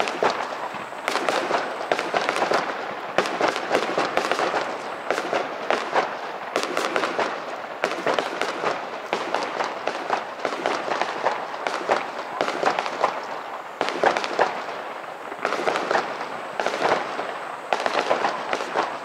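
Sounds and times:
fireworks crackling: 0:00.0 - 0:19.0.

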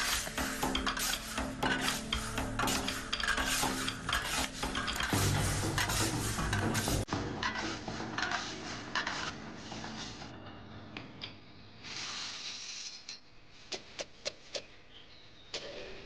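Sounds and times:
spatula scraping beans in wok: 0:00.0 - 0:10.3.

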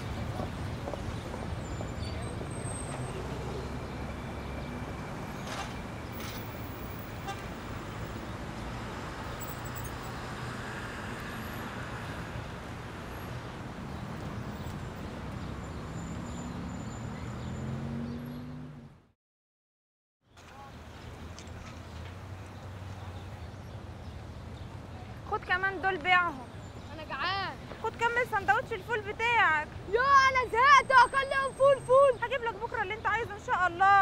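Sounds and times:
passing cars: 0:00.0 - 0:19.1
car engine: 0:15.6 - 0:19.1.

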